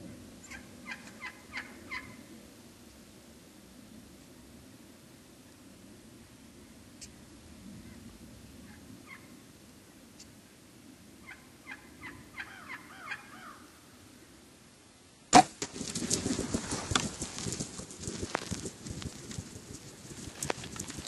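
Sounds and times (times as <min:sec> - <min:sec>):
turkeys calling: 0:00.4 - 0:02.2, 0:11.2 - 0:13.7
loud crack: 0:15.3 - 0:15.8
clatter and rustle: 0:15.5 - 0:21.0.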